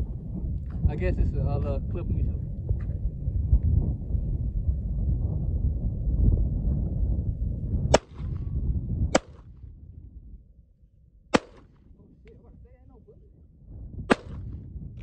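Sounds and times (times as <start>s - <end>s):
low rumble: 0.0s - 15.0s
pistol shots: 7.9s - 8.4s, 9.1s - 9.4s, 11.4s - 11.8s, 14.1s - 14.5s.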